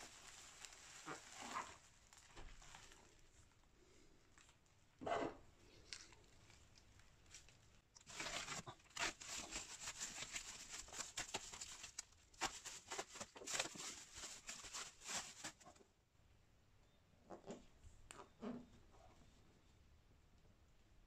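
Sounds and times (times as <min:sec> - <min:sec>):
plastic wrap crinkling: 0:00.0 - 0:03.6, 0:05.8 - 0:15.8
tape tearing: 0:08.0 - 0:15.6.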